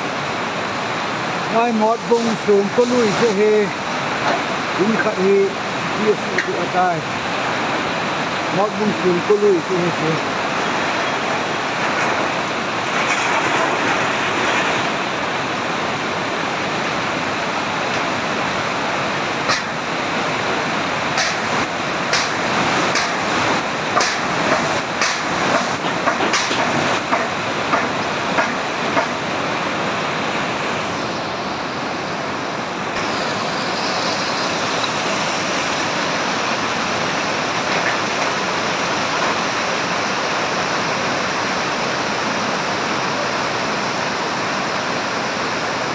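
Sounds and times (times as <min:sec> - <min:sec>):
floodwater rushing: 0:00.0 - 0:45.9
sharp knocks: 0:19.5 - 0:19.7, 0:21.2 - 0:21.5, 0:22.1 - 0:23.2, 0:23.9 - 0:29.2.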